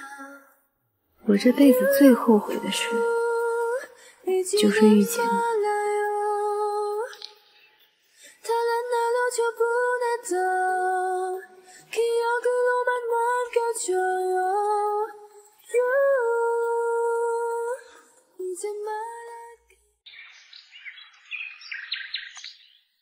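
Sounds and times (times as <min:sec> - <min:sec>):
woman singing slow melody: 0:00.0 - 0:00.6, 0:01.2 - 0:07.4, 0:08.3 - 0:19.8.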